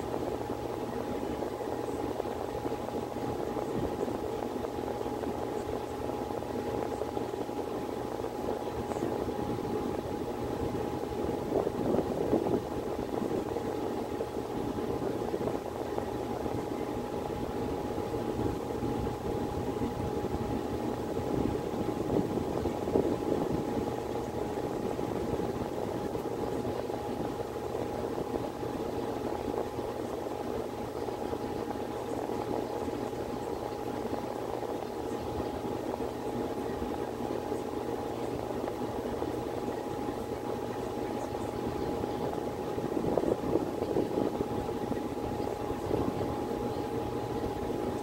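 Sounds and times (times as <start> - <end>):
constant hum: 0.0 - 48.0.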